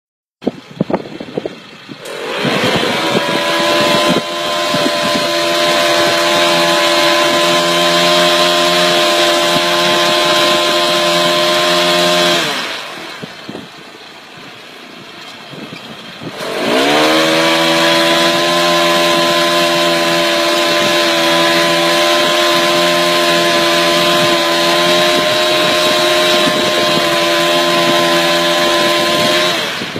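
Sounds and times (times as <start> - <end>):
tree trimming motor whining: 0.6 - 29.9.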